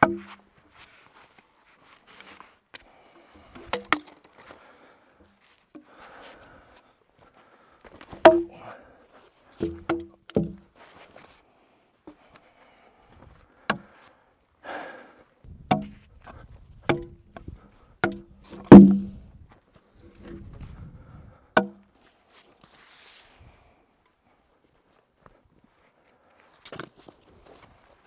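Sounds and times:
pickaroon striking logs: 0:00.0 - 0:00.4, 0:03.4 - 0:04.3, 0:08.1 - 0:08.7, 0:09.6 - 0:10.7, 0:13.7 - 0:13.9, 0:15.7 - 0:16.1, 0:16.8 - 0:19.2, 0:21.6 - 0:21.9
wooden logs knocking: 0:00.0 - 0:00.4, 0:03.3 - 0:04.4, 0:08.1 - 0:08.7, 0:09.6 - 0:10.7, 0:13.7 - 0:13.9, 0:15.6 - 0:19.3, 0:21.6 - 0:21.9.

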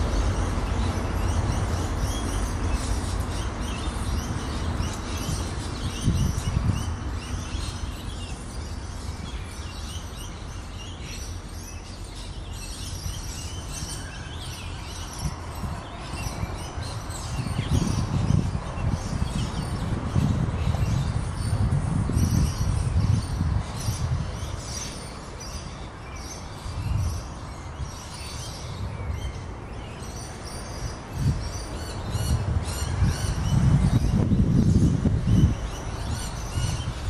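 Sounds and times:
small birds chirping: 0:00.0 - 0:37.0.

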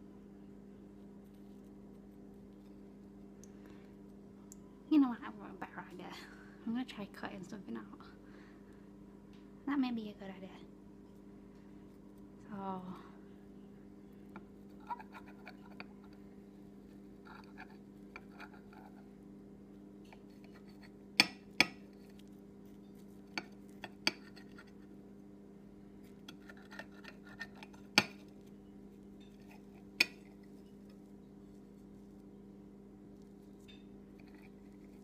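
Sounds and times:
steady low hum: 0:00.0 - 0:35.0
knife scraping through pancake: 0:14.8 - 0:15.9, 0:17.2 - 0:19.0, 0:20.2 - 0:21.0, 0:22.8 - 0:24.8, 0:26.3 - 0:28.2.

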